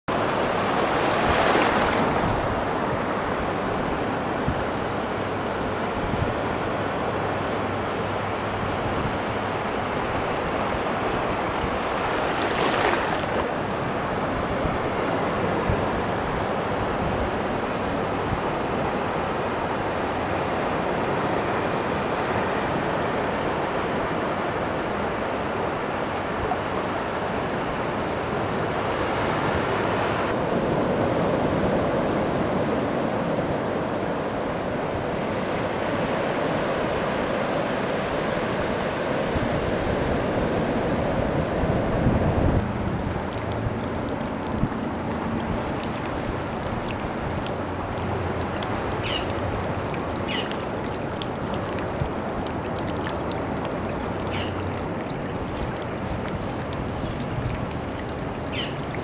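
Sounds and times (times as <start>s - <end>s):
ocean surf breaking: 0.1s - 4.4s, 10.0s - 15.5s.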